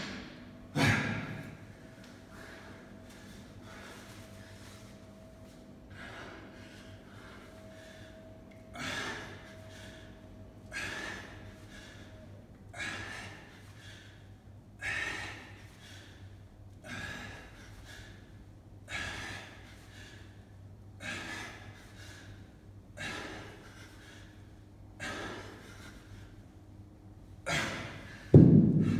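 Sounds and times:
man exhaling forcefully: 0:00.7 - 0:01.5.

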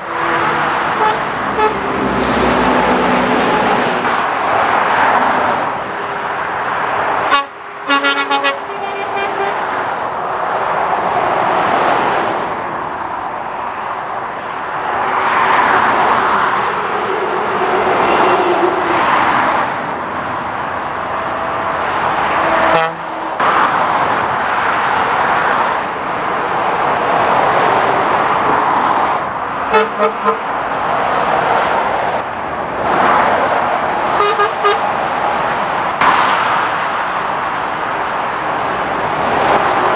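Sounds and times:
vehicles passing at speed: 0:00.0 - 0:39.9
car horn toots: 0:01.0 - 0:01.8, 0:07.3 - 0:09.6, 0:22.6 - 0:23.2, 0:29.7 - 0:30.5, 0:34.2 - 0:34.8.

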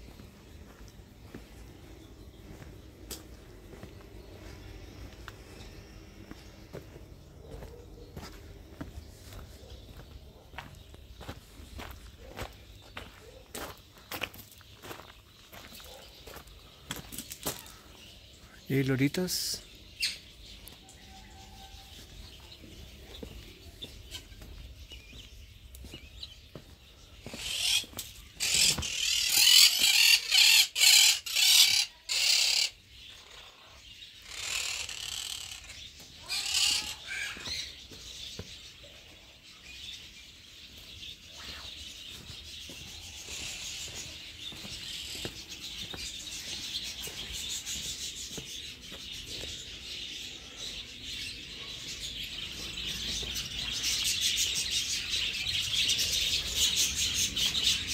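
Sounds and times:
high chatter of birds: 0:00.0 - 0:57.9
parakeets screeching: 0:27.2 - 0:37.9, 0:43.0 - 0:48.5.

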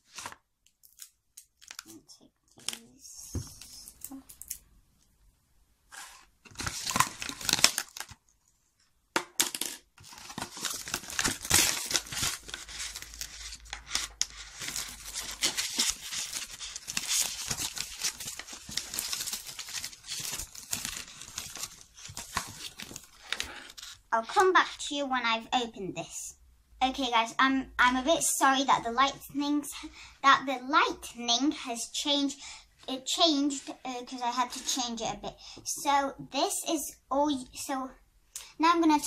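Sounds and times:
plastic packaging crinkling and tearing: 0:00.0 - 0:02.0, 0:06.5 - 0:08.2, 0:10.0 - 0:24.0.

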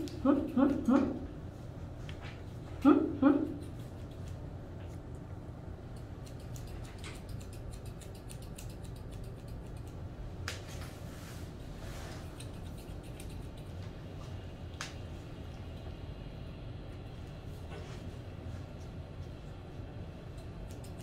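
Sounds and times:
scissors snipping fur: 0:00.0 - 0:01.3, 0:02.8 - 0:05.2, 0:05.8 - 0:10.9, 0:12.2 - 0:14.0, 0:20.2 - 0:21.0
steady low hum: 0:00.0 - 0:21.0.

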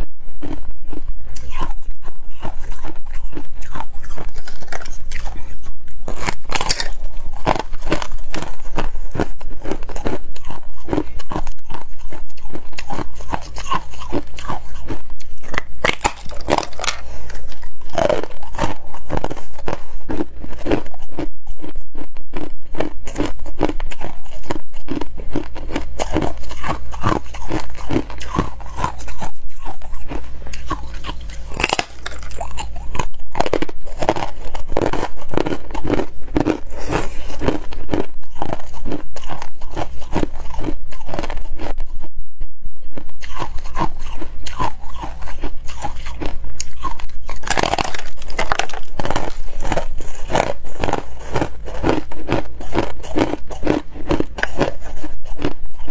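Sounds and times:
ice being crunched and chewed: 0:00.0 - 0:42.1, 0:43.0 - 0:55.9.

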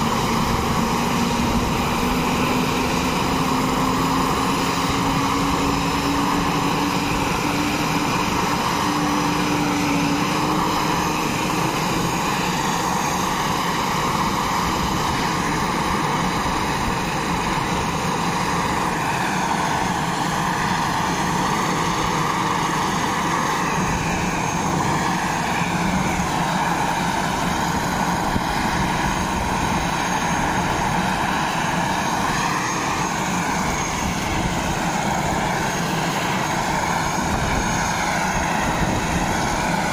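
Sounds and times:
helicopter rotor noise: 0:00.0 - 0:39.9
helicopter turbine whine: 0:00.0 - 0:39.9.

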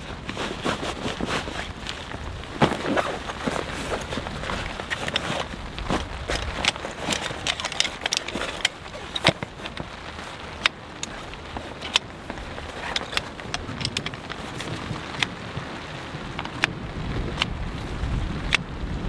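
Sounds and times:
fabric sack rustling: 0:00.0 - 0:15.2
chair poles clicking and knocking: 0:02.6 - 0:09.9, 0:10.6 - 0:15.3.

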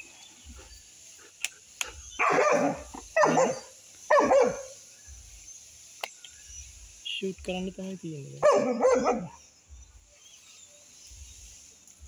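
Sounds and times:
dog barking: 0:02.2 - 0:04.8, 0:08.4 - 0:09.4.

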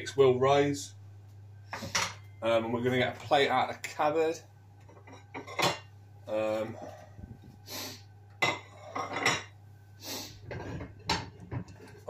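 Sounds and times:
plates clinking and scraping: 0:01.7 - 0:02.3, 0:04.8 - 0:05.9, 0:08.4 - 0:09.6, 0:10.4 - 0:12.0.

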